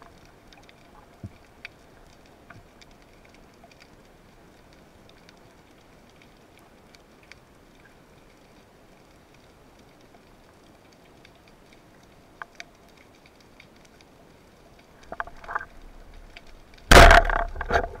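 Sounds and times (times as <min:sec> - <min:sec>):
faint underwater clicks: 0:00.0 - 0:18.0
speargun firing: 0:16.9 - 0:17.7
underwater knocks: 0:16.9 - 0:18.0.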